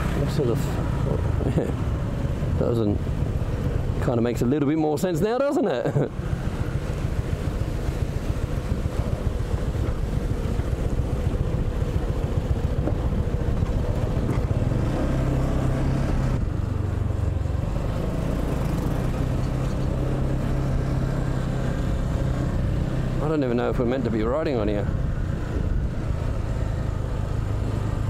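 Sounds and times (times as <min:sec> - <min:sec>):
motorbike engine running: 0:06.2 - 0:15.3
wind noise on microphone: 0:24.9 - 0:26.9.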